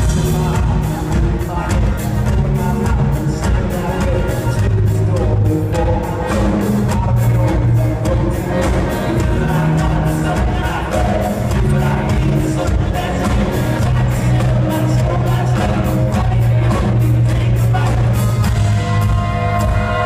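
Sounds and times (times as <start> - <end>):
bass line: 0.0 - 20.0
drum beat: 0.0 - 20.0
electric guitars: 0.0 - 20.0.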